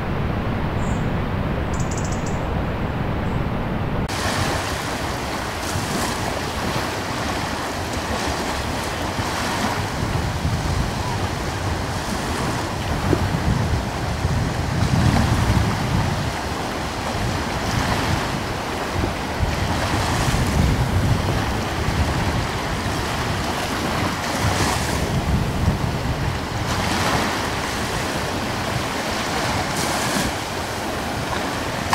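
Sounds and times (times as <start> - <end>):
waves breaking: 0.0 - 31.9
wind: 0.0 - 31.9.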